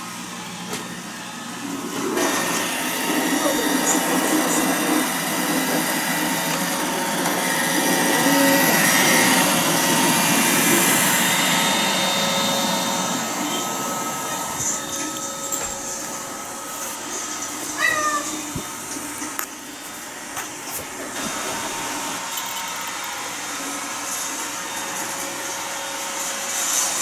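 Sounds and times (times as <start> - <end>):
robot vacuum whirring: 0.0 - 27.0
cat meowing: 17.7 - 18.6.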